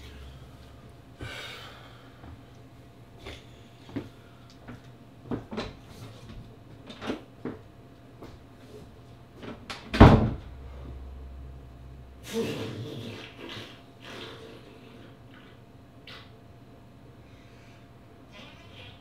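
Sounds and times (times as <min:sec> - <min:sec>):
low hum: 0:00.0 - 0:04.5, 0:10.2 - 0:14.0.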